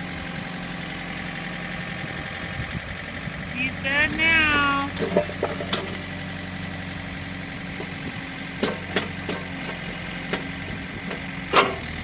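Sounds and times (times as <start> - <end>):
backhoe engine idling: 0.0 - 12.0
bucket knocking: 4.9 - 6.1, 7.8 - 11.8.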